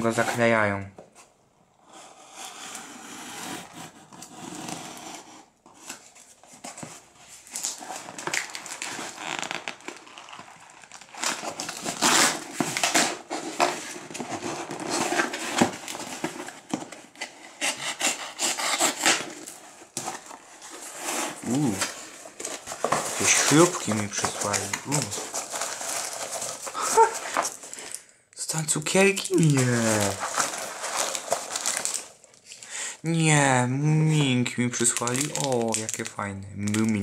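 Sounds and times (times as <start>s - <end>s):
cardboard scraping and tearing: 2.1s - 27.8s, 29.0s - 32.2s
knife slitting tape and cardboard: 11.2s - 20.4s.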